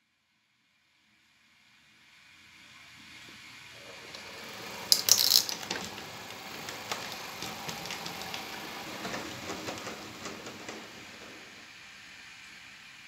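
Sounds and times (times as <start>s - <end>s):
model tram wheels clicking and rattling: 3.8s - 12.9s.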